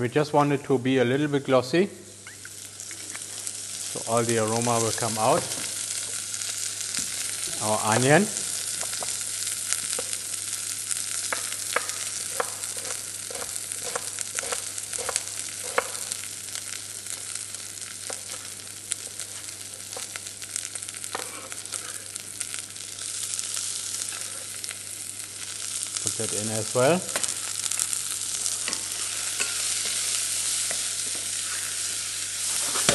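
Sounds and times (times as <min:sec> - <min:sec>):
vegetables sizzling in oil: 0:02.1 - 0:32.9
knife chopping on wooden board: 0:11.8 - 0:16.0.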